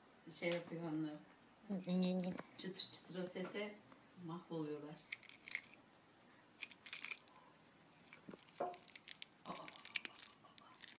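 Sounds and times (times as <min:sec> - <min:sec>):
wrapper crackling: 0:05.0 - 0:05.8, 0:06.6 - 0:07.3, 0:08.0 - 0:11.0
cat chewing candy: 0:08.1 - 0:11.0.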